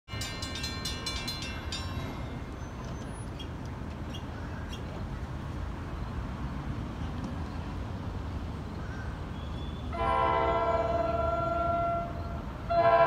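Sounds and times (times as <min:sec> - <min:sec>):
crossing warning bell ringing: 0:00.1 - 0:03.3, 0:10.0 - 0:13.0.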